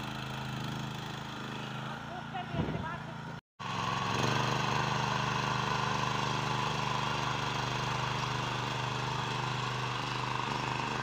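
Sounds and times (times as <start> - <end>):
power tiller engine running: 0.0 - 11.0.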